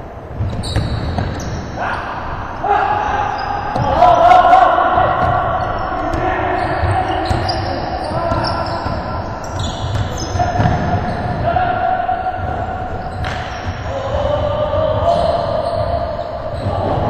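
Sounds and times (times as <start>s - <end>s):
voices echoing in gym: 0.0s - 17.0s
basketball bouncing: 0.4s - 1.6s, 5.0s - 11.4s.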